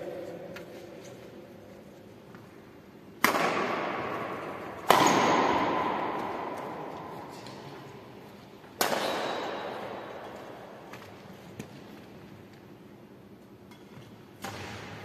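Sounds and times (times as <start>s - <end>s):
loud sharp bangs echoing: 3.2s - 7.3s, 8.8s - 10.3s.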